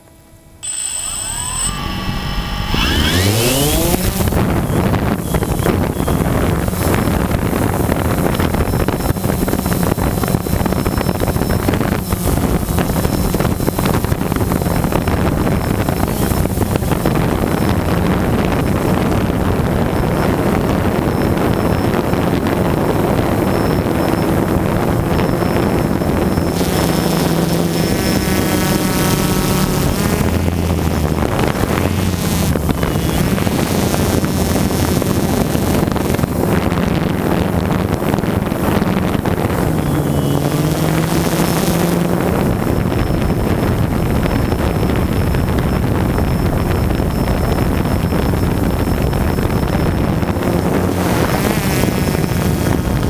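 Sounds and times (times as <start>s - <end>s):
drone propellers buzzing: 0.0s - 53.0s
wind buffeting microphone: 1.6s - 53.0s.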